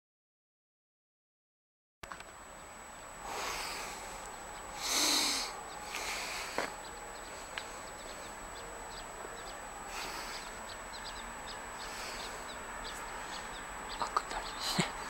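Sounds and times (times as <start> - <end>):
faint bird chirps: 3.3 - 15.0.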